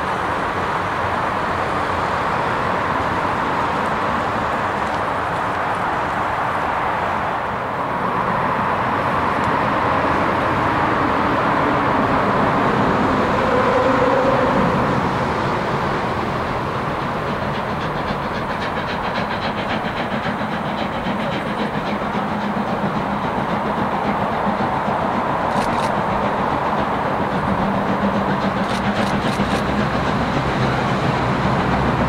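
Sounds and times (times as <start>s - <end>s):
steam train rumbling: 0.0s - 32.0s
steam locomotive fast regular beat: 16.1s - 32.0s.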